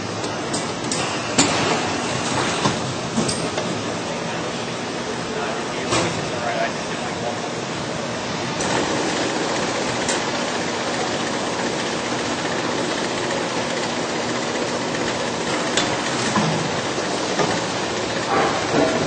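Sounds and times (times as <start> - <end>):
filling machine running: 7.8 - 19.0.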